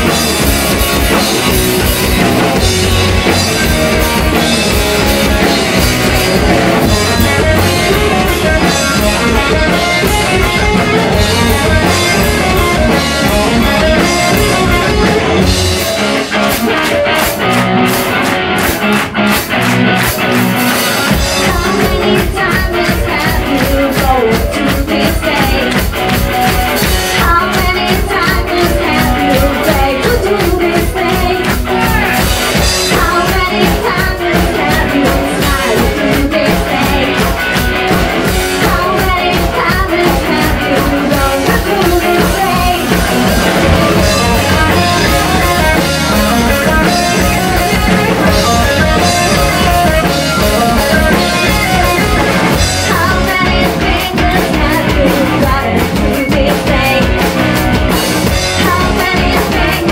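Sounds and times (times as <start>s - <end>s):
drum kit beat: 0.0s - 59.9s
live rock band playing: 0.0s - 59.9s
woman singing: 21.1s - 26.2s, 26.8s - 37.6s, 38.5s - 59.9s.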